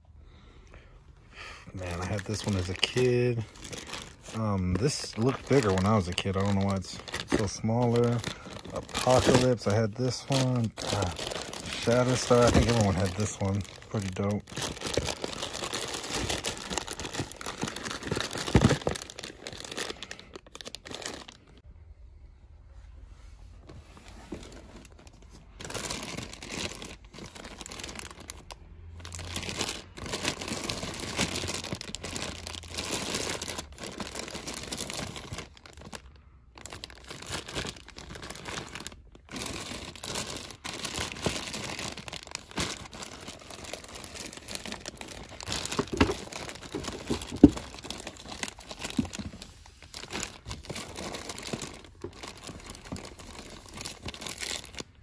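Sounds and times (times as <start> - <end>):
plastic bags crinkling: 1.7 - 21.6, 24.3 - 55.0.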